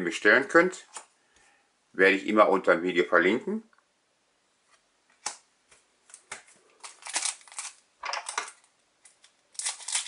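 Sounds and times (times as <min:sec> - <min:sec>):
cards being handled: 0:04.7 - 0:10.0
foil pack crinkling: 0:06.4 - 0:10.0.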